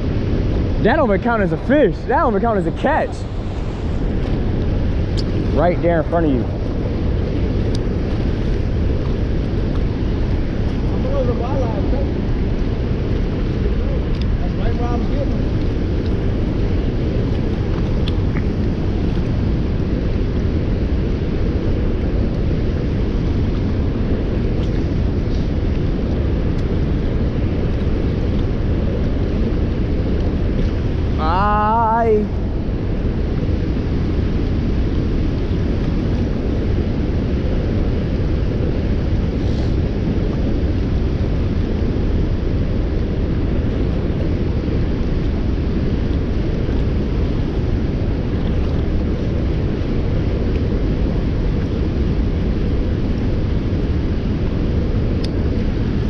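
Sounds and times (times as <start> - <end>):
wind on microphone: 0.0 - 56.0.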